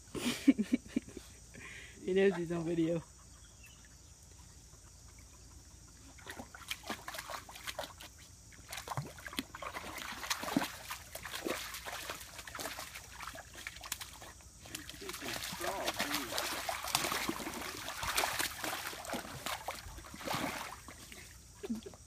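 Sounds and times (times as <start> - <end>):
dog splashing in water: 6.0 - 21.9.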